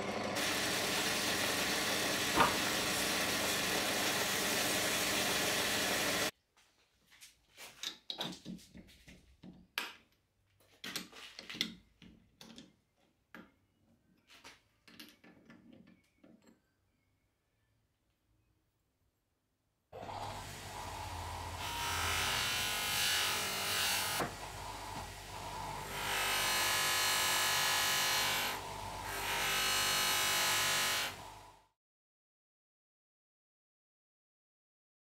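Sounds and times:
metal lathe running: 0.0s - 6.3s, 20.0s - 31.4s.

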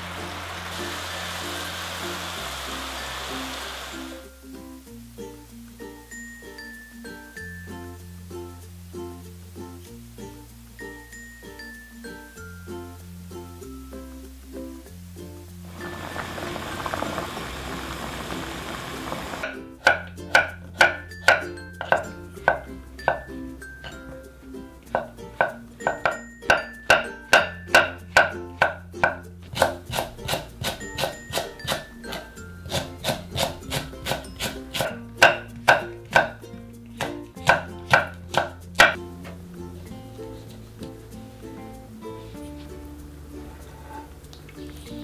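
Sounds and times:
water boiling in a pot: 0.0s - 4.2s, 15.7s - 21.9s
light ukulele music: 0.0s - 45.0s
knife chopping on wooden board: 25.0s - 36.4s, 37.0s - 39.0s.

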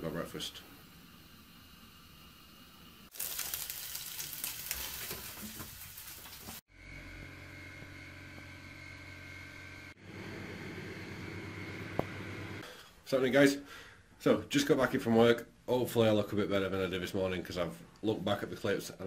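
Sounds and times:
crackling hiss: 0.1s - 6.6s
microwave oven humming: 6.7s - 12.6s
oven humming: 6.8s - 12.6s.

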